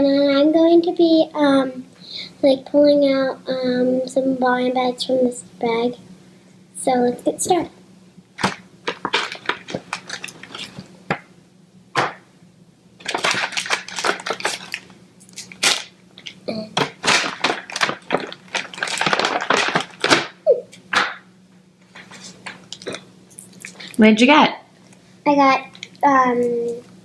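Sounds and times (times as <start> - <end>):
foil packet crinkling: 8.4 - 10.9, 13.0 - 21.2, 21.9 - 24.0
paper bag rustling: 8.4 - 10.9, 13.0 - 20.4, 21.9 - 23.0.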